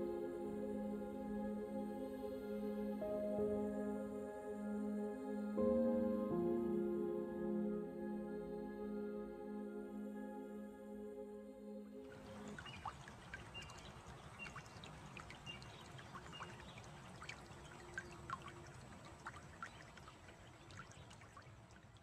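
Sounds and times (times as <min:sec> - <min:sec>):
water trickling and dripping: 0:12.0 - 0:22.0.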